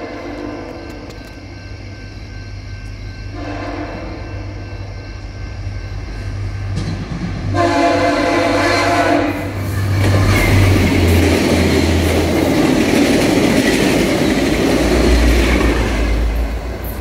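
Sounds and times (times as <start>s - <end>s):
train rumbling: 0.0s - 17.0s
train air horn blasts: 3.3s - 4.6s, 7.4s - 9.6s.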